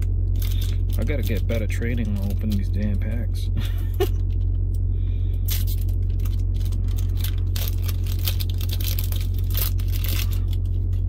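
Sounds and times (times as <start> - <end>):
foil pack tearing and crinkling: 0.0 - 2.7, 5.5 - 11.0
refrigeration unit humming: 0.0 - 11.0.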